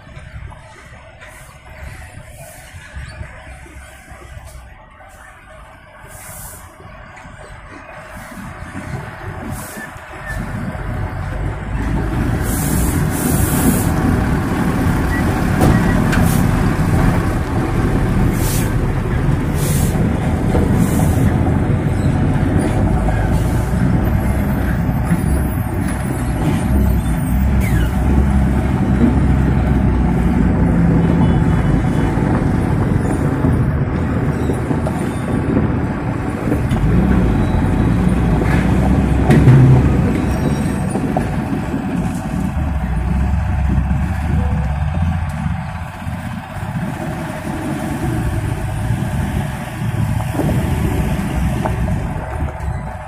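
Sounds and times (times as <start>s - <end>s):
diesel truck engine rumble: 0.0s - 53.0s
air brake hisses: 6.1s - 6.8s.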